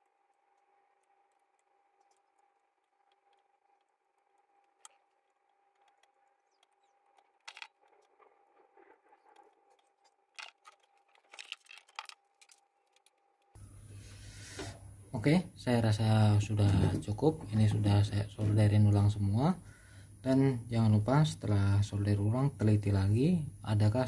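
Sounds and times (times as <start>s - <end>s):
soldering iron clicks and scrapes: 0.0s - 13.6s
faint steady hum: 0.0s - 24.0s.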